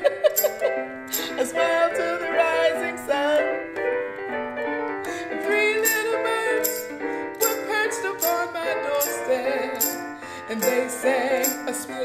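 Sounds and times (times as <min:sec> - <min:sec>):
electronic keyboard chords: 0:00.0 - 0:12.0
tambourine shaking: 0:00.2 - 0:01.7, 0:05.8 - 0:11.9
woman singing: 0:01.1 - 0:03.7, 0:05.3 - 0:12.0.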